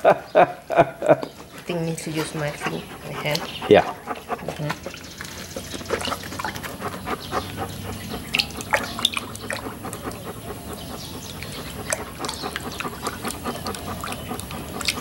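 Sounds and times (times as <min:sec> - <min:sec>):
small splashes and drips: 0:04.1 - 0:10.2, 0:11.4 - 0:15.0.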